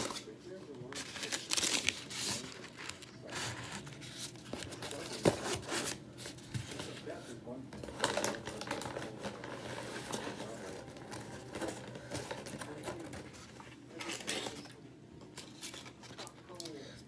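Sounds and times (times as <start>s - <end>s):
foil paper bag crinkling: 0.9s - 7.2s, 7.8s - 14.8s.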